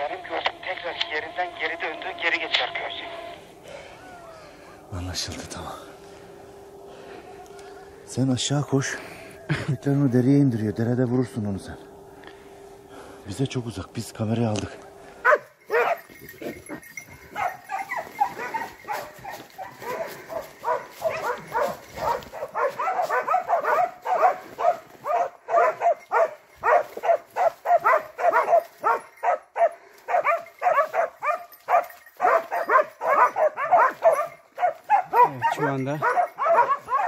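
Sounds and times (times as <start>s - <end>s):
dogs barking: 15.2s - 37.0s.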